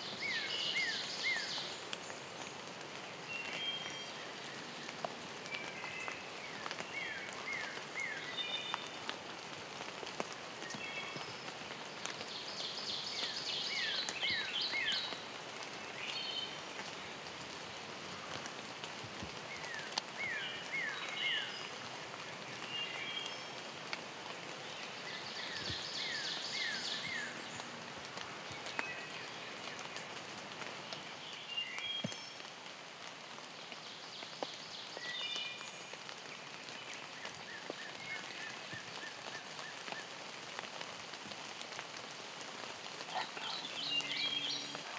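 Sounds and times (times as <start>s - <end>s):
songbirds singing: 0.0s - 9.1s, 10.6s - 18.0s, 19.3s - 23.8s, 24.4s - 32.6s, 42.4s - 44.9s
rain falling on leaves: 0.0s - 44.9s.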